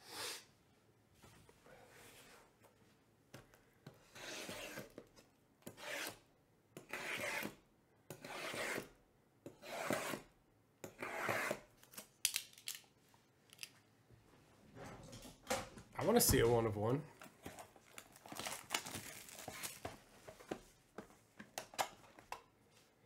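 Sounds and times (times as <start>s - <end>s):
blade slitting plastic wrap: 17.8s - 19.8s.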